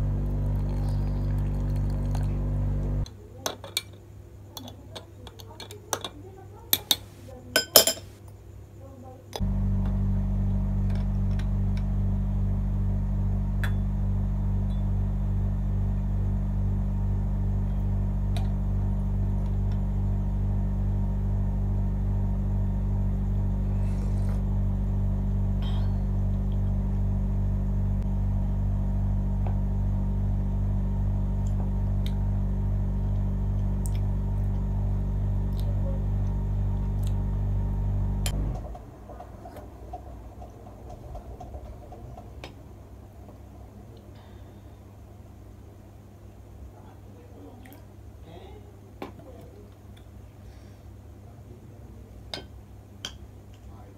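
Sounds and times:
loud low hum: 0.0 - 3.1, 9.4 - 44.7.

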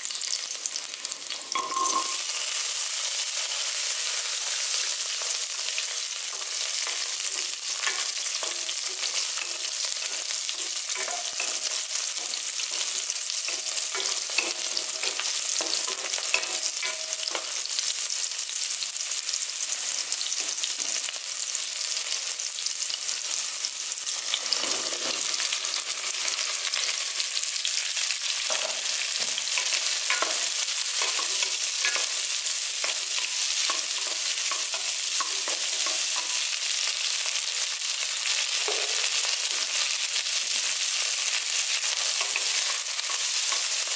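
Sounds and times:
food sizzling in hot oil: 0.0 - 43.9
spatula scraping a pot: 24.3 - 25.6.

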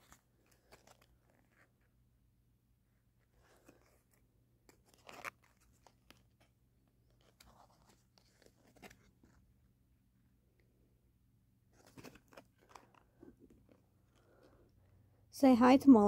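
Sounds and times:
rustling and clicking of paper tags: 0.0 - 1.8, 11.8 - 14.7.

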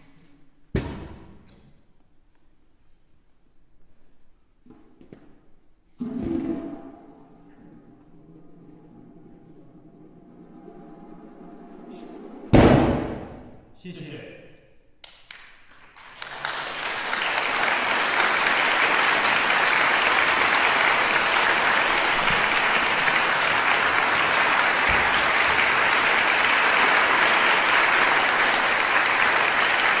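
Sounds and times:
audience applauding: 15.0 - 30.0.

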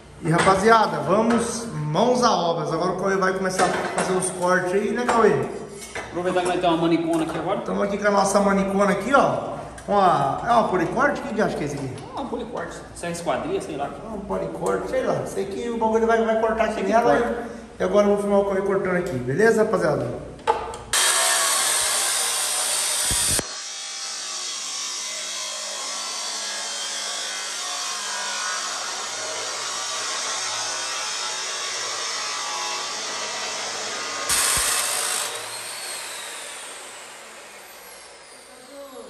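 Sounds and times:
motor winding down whine: 20.9 - 39.0
cut-off saw grinding steel: 21.0 - 38.7.

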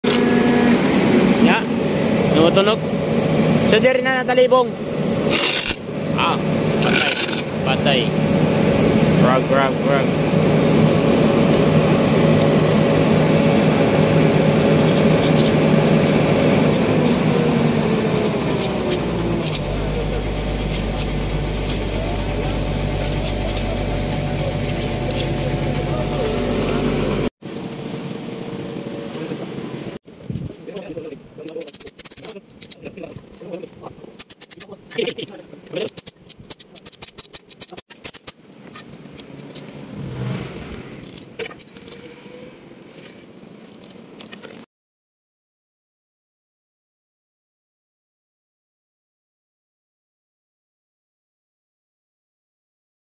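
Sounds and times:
diesel engine idling: 0.1 - 27.3.

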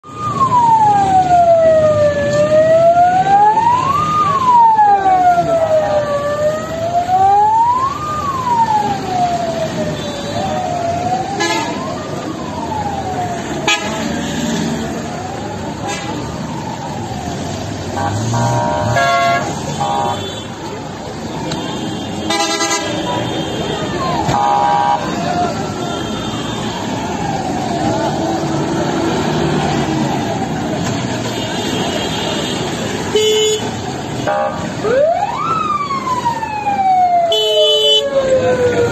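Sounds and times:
siren wailing: 0.0 - 20.1, 23.0 - 30.8, 34.3 - 38.9
passing vehicles: 0.0 - 38.9
vehicle horns honking: 18.0 - 20.6, 21.6 - 23.7, 31.3 - 34.7, 37.3 - 38.0.

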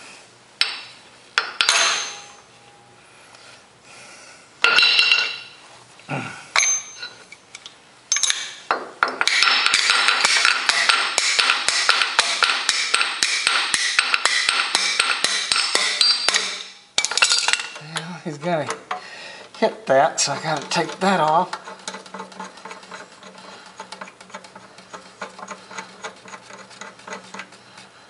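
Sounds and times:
hand tools clinking on steel fittings: 9.2 - 27.6.

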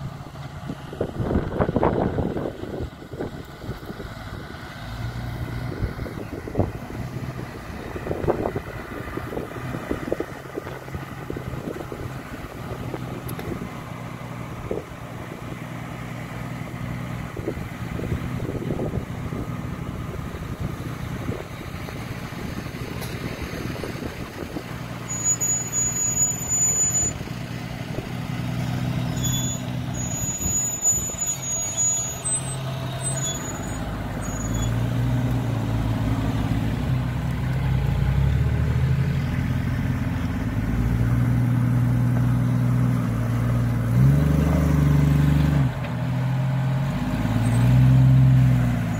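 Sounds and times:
engine running at low revs: 0.0 - 25.3, 26.8 - 31.6, 32.2 - 48.9
brief high-pitched squeals: 25.1 - 27.2, 29.0 - 34.8.

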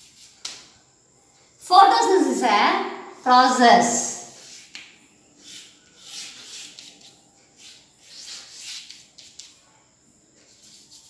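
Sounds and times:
chalk scratching on blackboard: 0.0 - 0.5, 4.3 - 9.6, 10.5 - 11.0
chalk tapping: 4.4 - 9.6.

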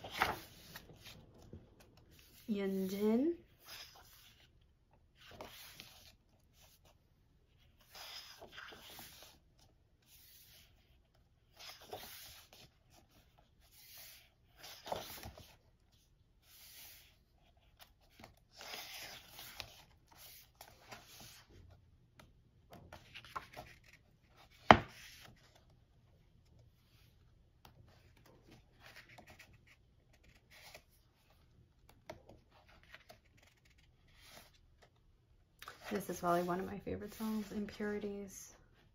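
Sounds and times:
paper pages rustling: 0.0 - 3.0, 5.2 - 7.0, 7.6 - 15.6, 16.4 - 21.6, 22.8 - 25.8, 27.8 - 35.0.

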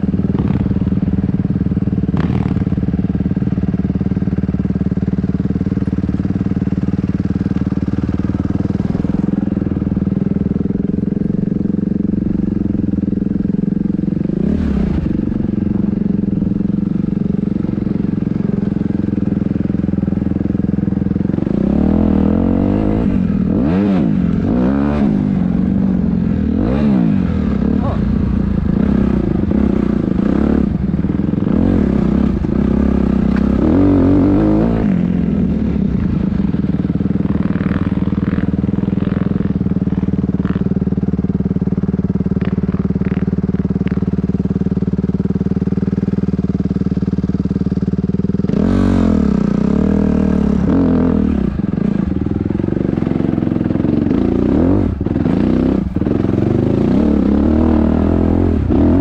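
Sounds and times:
dirt bike engine revving: 2.1 - 2.8, 6.3 - 41.1, 47.8 - 59.0.

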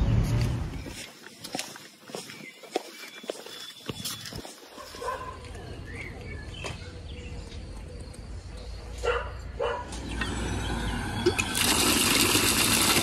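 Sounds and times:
bird chirping: 0.0 - 11.3
dog barking: 4.7 - 5.5, 9.0 - 10.0.

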